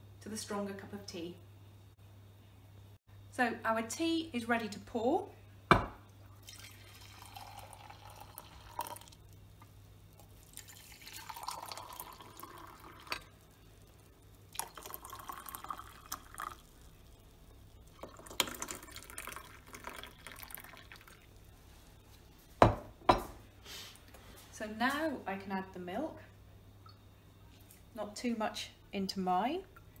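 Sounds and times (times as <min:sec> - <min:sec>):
tea pouring into mugs: 0:06.4 - 0:09.4, 0:10.2 - 0:21.5.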